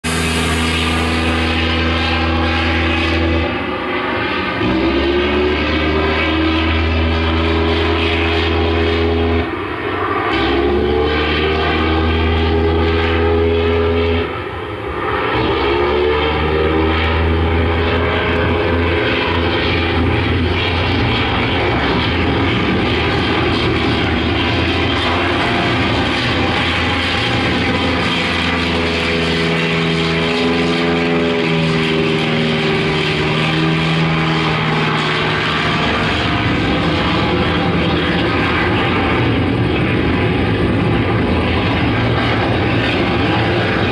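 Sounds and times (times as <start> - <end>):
propeller aircraft engine running: 0.0 - 43.9.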